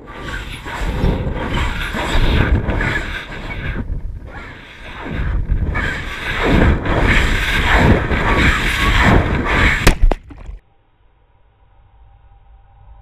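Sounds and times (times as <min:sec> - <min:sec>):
wind rushing: 0:00.0 - 0:10.4.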